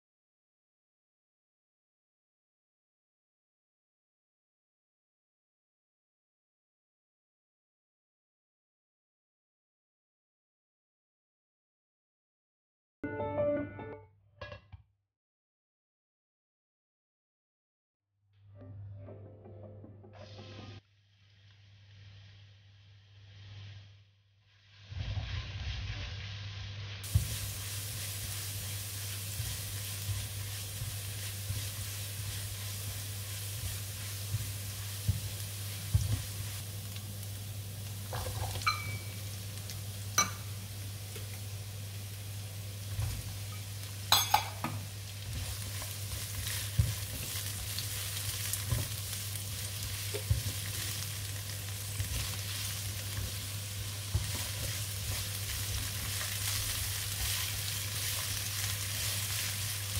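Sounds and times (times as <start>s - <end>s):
stir-fry sizzling in a pan: 20.2s - 59.9s
spatula scraping a pan: 24.6s - 36.6s, 45.2s - 59.9s.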